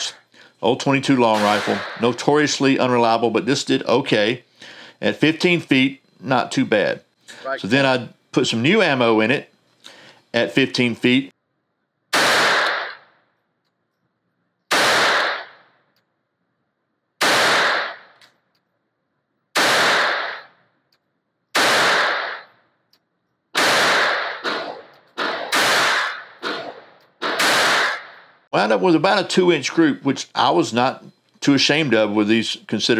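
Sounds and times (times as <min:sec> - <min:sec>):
pistol shots echoing indoors: 0:01.3 - 0:02.2, 0:12.1 - 0:13.2, 0:14.7 - 0:15.8, 0:17.2 - 0:18.2, 0:19.5 - 0:20.6, 0:21.5 - 0:22.6, 0:23.6 - 0:28.2.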